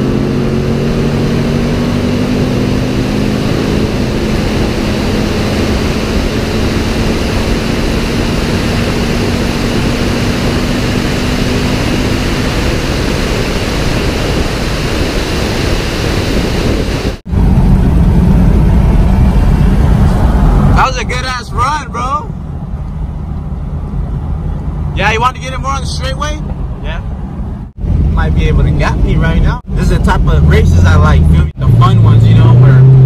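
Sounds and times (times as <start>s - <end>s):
wind rushing over camera: 0.0s - 20.8s
car engine drone: 0.0s - 33.0s
engine and road rumble in cabin: 0.0s - 33.0s.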